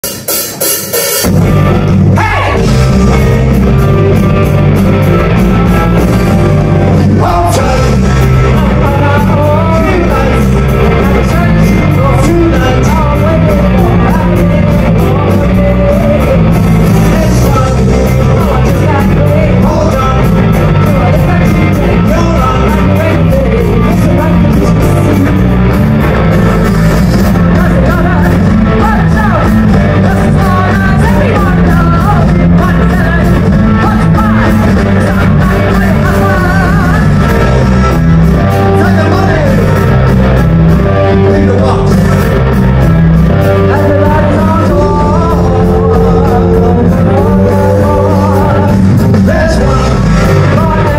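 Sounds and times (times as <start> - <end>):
live rock band: 0.0 - 50.9
woman singing: 27.5 - 37.1.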